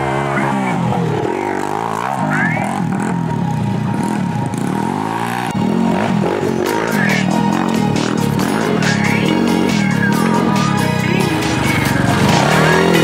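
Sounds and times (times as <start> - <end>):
quad engines revving: 0.0 - 13.0.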